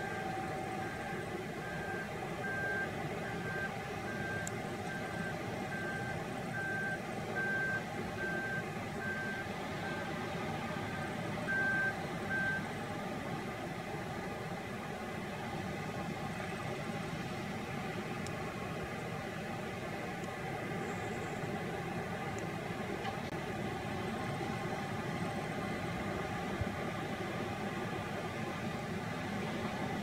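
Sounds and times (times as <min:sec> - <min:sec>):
reversing alarm beeping: 0:00.0 - 0:12.7
diesel engine running: 0:00.0 - 0:30.0.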